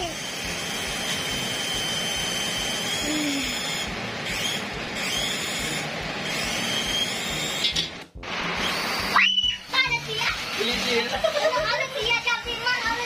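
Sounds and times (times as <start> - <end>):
toy helicopter rotor whirring: 0.0 - 7.9, 8.5 - 13.0.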